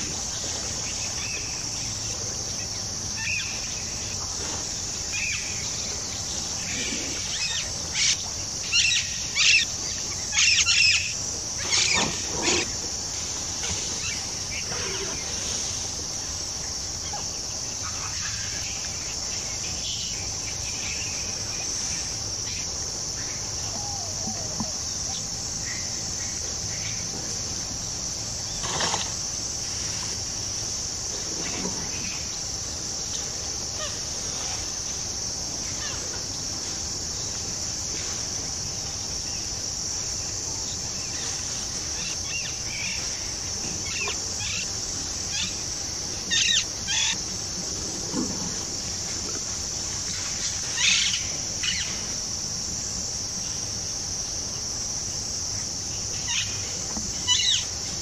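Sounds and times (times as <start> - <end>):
bird calls: 22.5 - 27.0.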